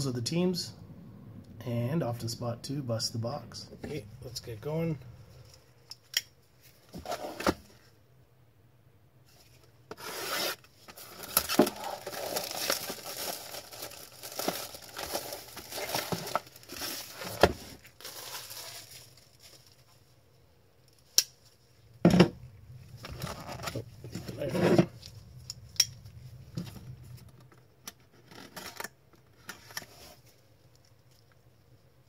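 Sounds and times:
plastic wrap crinkling and tearing: 10.0 - 20.1.

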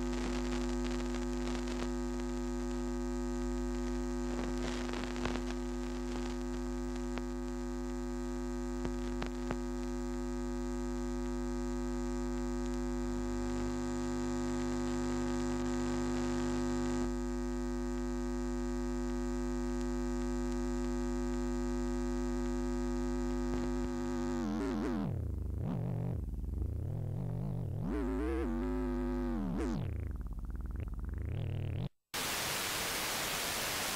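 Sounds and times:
electrical hum: 18.2 - 33.9.

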